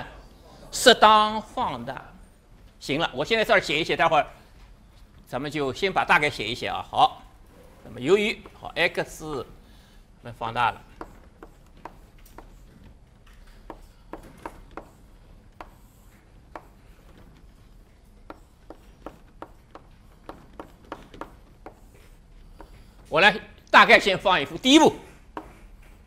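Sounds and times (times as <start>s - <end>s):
chalk writing on blackboard: 7.5s - 9.7s, 10.4s - 23.1s, 25.0s - 26.0s.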